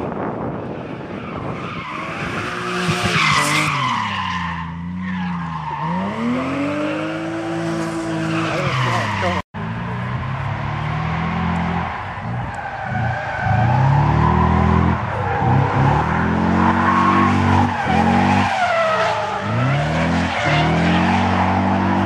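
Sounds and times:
car engine revving: 4.7s - 22.0s.

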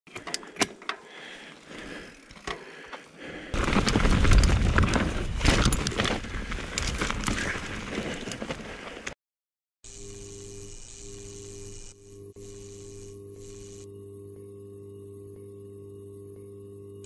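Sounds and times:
tyres crunching over stones: 3.5s - 9.1s.

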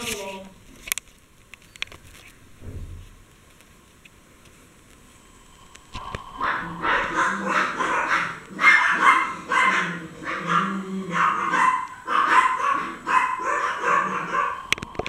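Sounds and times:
dog vocalizing: 6.0s - 14.9s.

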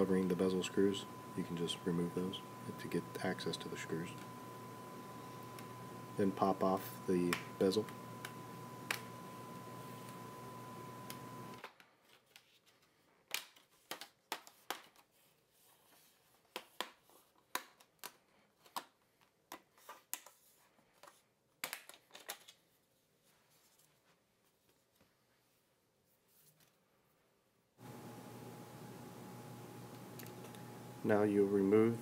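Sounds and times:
faint whine: 0.0s - 11.6s, 27.8s - 32.0s
hiss and hum: 0.0s - 11.6s.

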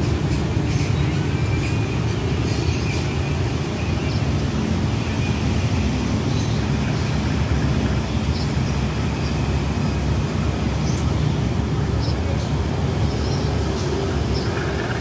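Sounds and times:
diesel locomotive idling: 12.4s - 15.0s.

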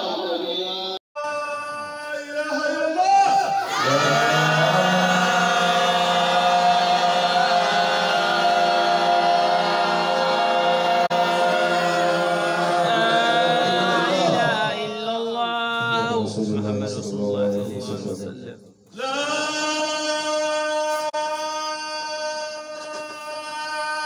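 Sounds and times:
voices chanting in unison: 3.6s - 16.1s.

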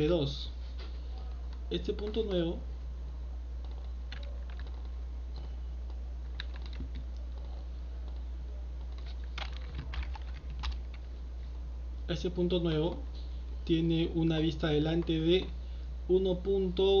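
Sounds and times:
keyboard keystrokes: 3.6s - 4.9s, 6.3s - 7.2s, 8.9s - 11.0s.

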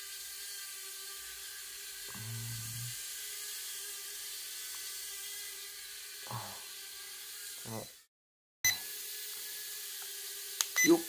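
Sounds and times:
toy drone propellers whirring: 0.0s - 8.1s, 8.7s - 11.0s
short low hum: 2.1s - 3.0s.

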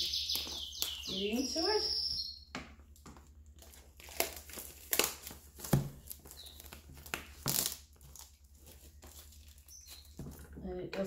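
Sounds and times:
plastic wrap crinkling and tearing: 3.0s - 10.5s.

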